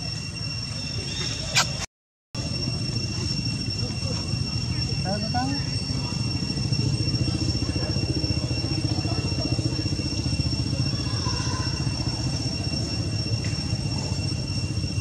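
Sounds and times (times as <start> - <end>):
high-pitched whine: 0.0 - 15.0.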